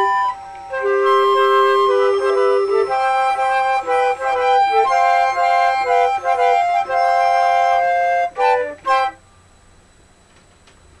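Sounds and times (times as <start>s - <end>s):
flutes playing chords: 0.0s - 9.5s.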